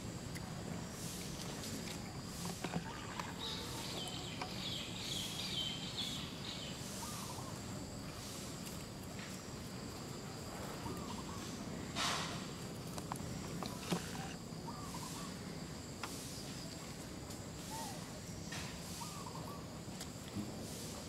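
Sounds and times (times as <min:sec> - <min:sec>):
outdoor background: 0:00.0 - 0:21.0
dragging over dirt and leaves: 0:00.9 - 0:06.0, 0:08.1 - 0:14.4.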